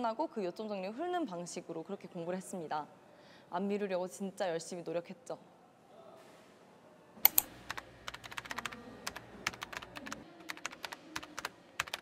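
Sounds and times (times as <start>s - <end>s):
keyboard key clicks: 7.3s - 12.0s.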